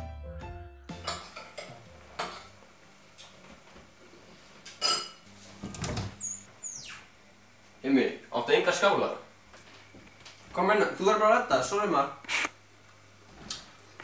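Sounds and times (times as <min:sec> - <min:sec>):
cutlery and dishes clinking: 0:01.0 - 0:02.5, 0:04.7 - 0:05.2
cupboard door squeaking: 0:05.8 - 0:07.1.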